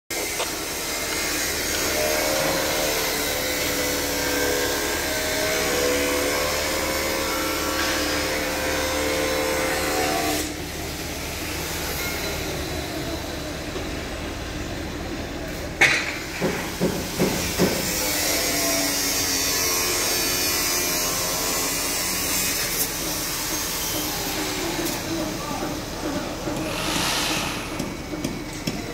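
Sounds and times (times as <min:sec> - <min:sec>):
machinery hiss and whine: 0:22.6 - 0:28.9.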